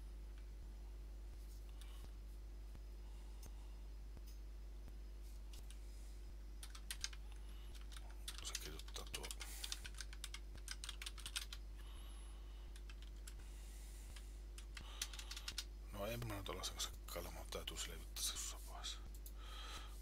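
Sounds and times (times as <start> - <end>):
steady low hum: 0.0 - 20.0
typing on computer keyboard: 6.6 - 11.6, 12.8 - 13.4, 14.6 - 15.7.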